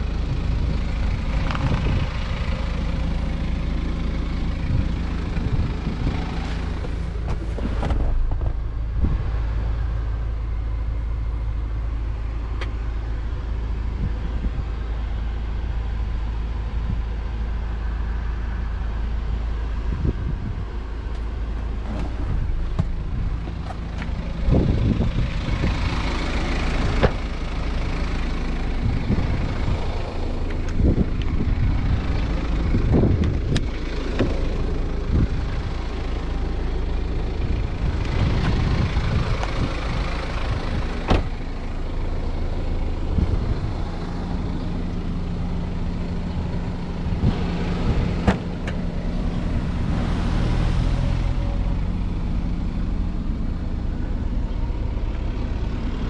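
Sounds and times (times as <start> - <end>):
rush of wind: 0.0 - 10.0, 12.7 - 51.5
car engine idling: 0.0 - 56.0
handling knocks and clicks: 21.1 - 24.2.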